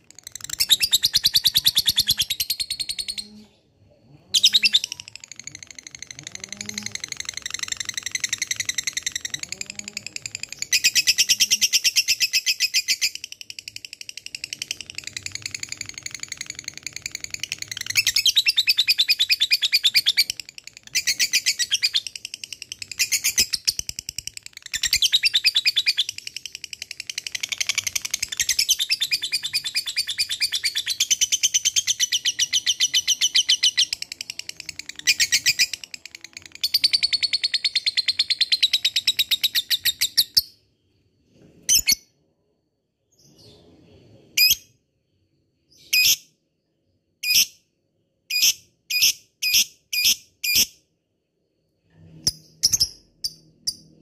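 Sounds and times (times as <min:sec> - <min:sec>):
bird chattering chirps: 0:00.0 - 0:03.4.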